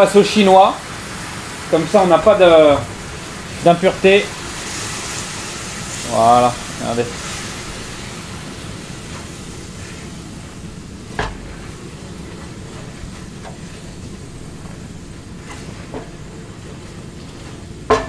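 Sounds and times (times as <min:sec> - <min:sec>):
soup sizzling in a pan: 0:00.0 - 0:18.0
wooden spatula scraping a pan: 0:15.4 - 0:18.0.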